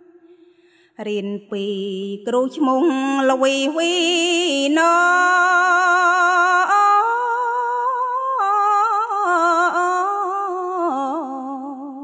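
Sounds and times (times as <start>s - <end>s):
woman chanting unaccompanied: 1.0s - 7.9s.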